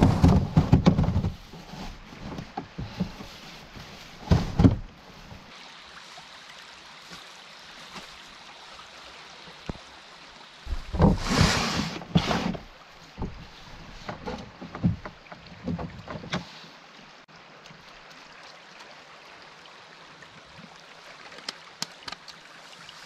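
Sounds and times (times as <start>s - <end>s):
flowing water rushing: 0.0s - 23.0s
paddle splashing in water: 10.7s - 16.7s.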